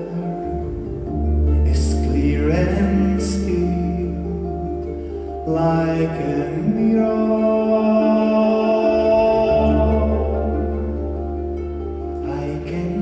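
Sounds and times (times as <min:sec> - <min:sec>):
harp playing plucked notes: 0:00.0 - 0:13.0
low double bass note: 0:08.4 - 0:13.0.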